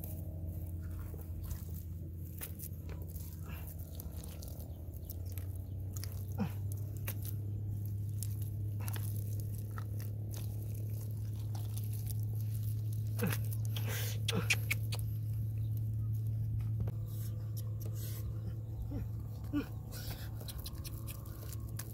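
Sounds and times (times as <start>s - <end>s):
steady low hum: 0.0s - 21.9s
hands breaking dried mud: 1.4s - 15.9s, 18.9s - 21.9s.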